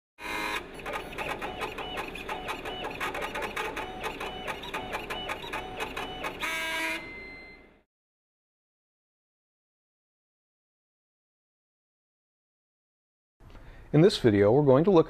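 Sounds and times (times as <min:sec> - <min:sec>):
stepper motor ticking and clicking: 0:00.2 - 0:07.0
held electronic tone: 0:00.2 - 0:07.8
short whining tones: 0:00.2 - 0:07.9.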